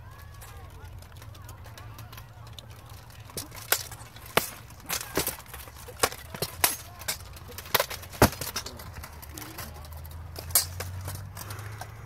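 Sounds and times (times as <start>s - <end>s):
swords clanking on armour: 10.4s - 11.9s.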